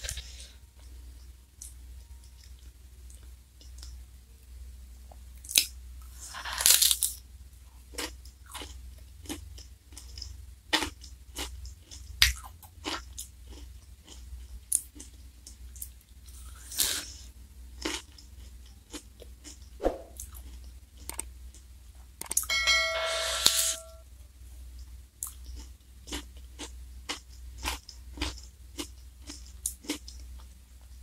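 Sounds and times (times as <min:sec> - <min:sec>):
crunching wafer cone bites: 0:05.4 - 0:07.2
chewing with wet mouth sounds: 0:08.0 - 0:17.2, 0:17.8 - 0:22.4, 0:24.8 - 0:31.0
low hum: 0:19.8 - 0:20.4, 0:22.4 - 0:24.7.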